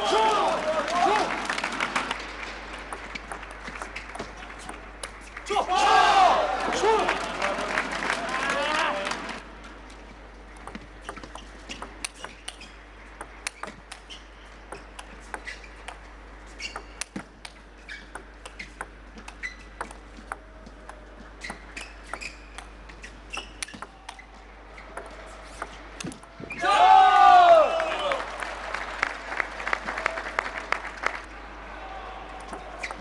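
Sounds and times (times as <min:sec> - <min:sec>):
table tennis ball clicking: 0:02.8 - 0:05.4, 0:10.6 - 0:16.0, 0:16.6 - 0:24.2
shoes squeaking on floor: 0:13.6 - 0:15.9, 0:16.5 - 0:17.0, 0:19.4 - 0:20.1, 0:21.2 - 0:25.0.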